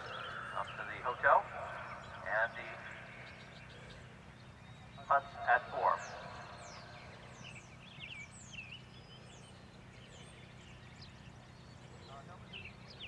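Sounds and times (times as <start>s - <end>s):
faint low hum: 0.0s - 13.0s
wild birds chirping: 0.0s - 13.0s.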